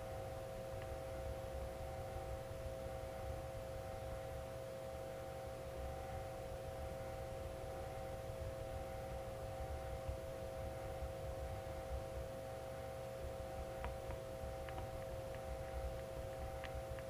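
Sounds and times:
humming held tones: 0:00.0 - 0:17.0.

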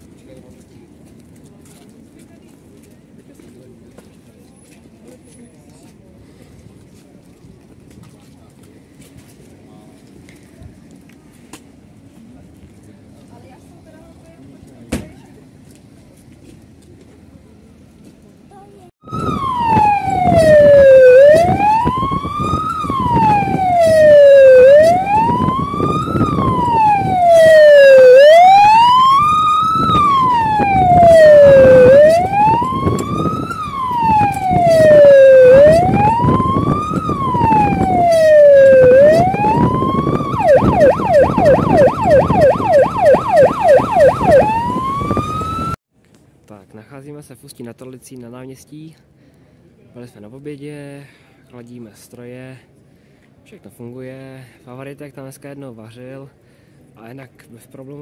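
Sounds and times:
car road noise: 0:19.0 - 0:45.8
police siren wailing: 0:19.0 - 0:45.8.

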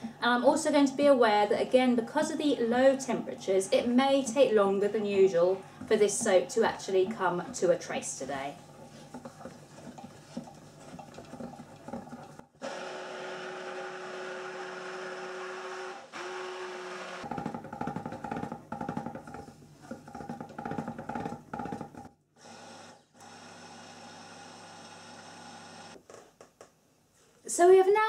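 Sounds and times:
stick blender motor hum: 0:09.3 - 0:18.5, 0:22.4 - 0:26.0.

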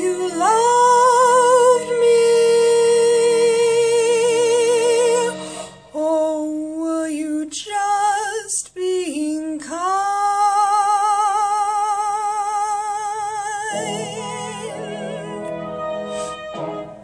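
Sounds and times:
low musical accompaniment: 0:00.0 - 0:06.8, 0:13.4 - 0:17.0
woman singing a slow ballad: 0:00.0 - 0:15.5.

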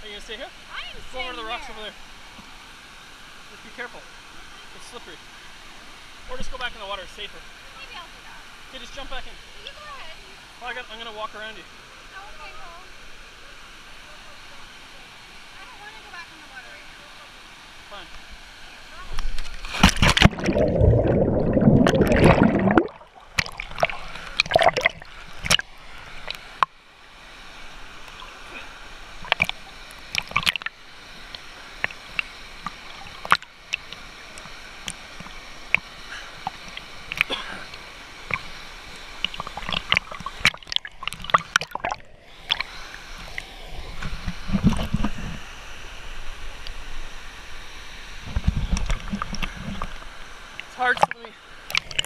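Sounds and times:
water sloshing and lapping: 0:19.0 - 0:26.8, 0:27.9 - 0:45.5, 0:48.2 - 0:52.0
underwater rushing: 0:19.0 - 0:52.0
sharp drips and clicks: 0:19.1 - 0:26.8, 0:29.2 - 0:45.2, 0:48.3 - 0:52.0
loud splash: 0:19.6 - 0:25.6.

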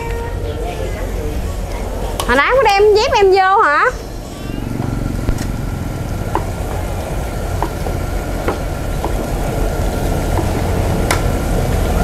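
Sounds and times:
gas burner rumble: 0:00.0 - 0:12.0.

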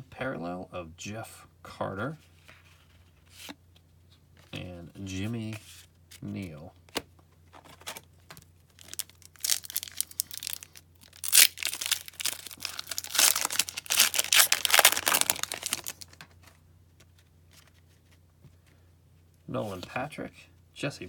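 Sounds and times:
wrapper tearing and crinkling: 0:08.7 - 0:16.2.

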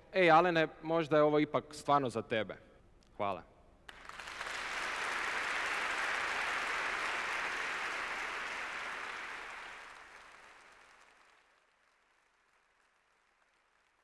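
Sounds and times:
audience applauding: 0:03.9 - 0:14.0.

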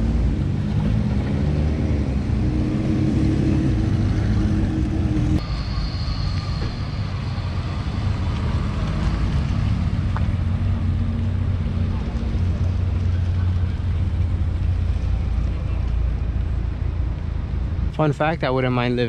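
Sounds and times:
faint high whine: 0:05.4 - 0:08.8.

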